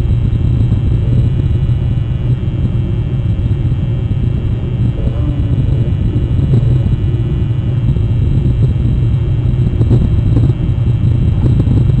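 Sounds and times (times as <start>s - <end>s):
low rumble: 0.0s - 12.0s.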